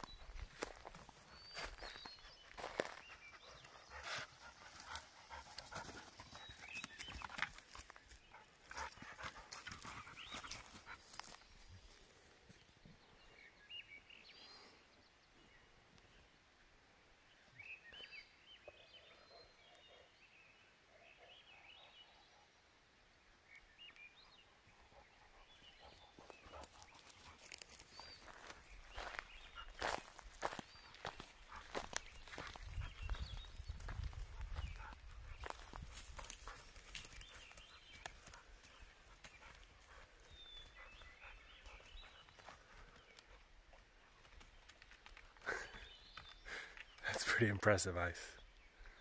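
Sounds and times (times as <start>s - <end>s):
paws scuffing and wood shifting: 0.0s - 12.1s, 25.9s - 43.3s
dogs panting and sniffing: 0.5s - 11.9s, 24.6s - 44.4s.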